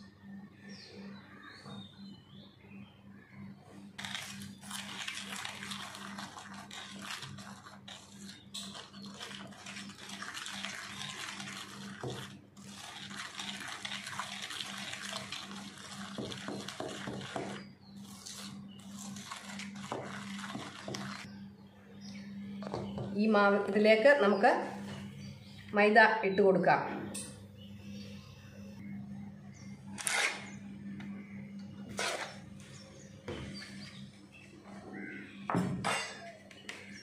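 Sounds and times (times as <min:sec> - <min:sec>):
hand whisk scraping steel bowl: 0:04.8 - 0:21.3.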